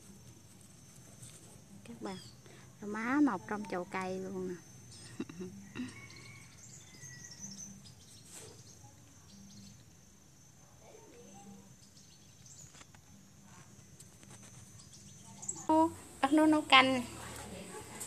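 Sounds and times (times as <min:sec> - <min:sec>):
birds chirping: 0:01.7 - 0:10.5.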